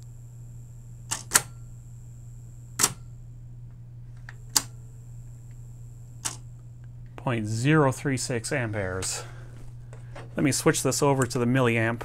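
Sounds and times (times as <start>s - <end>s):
low steady hum: 0.0s - 12.0s
cassette deck mechanism clicking: 1.1s - 1.6s, 2.8s - 3.1s, 4.2s - 4.8s, 6.2s - 6.4s.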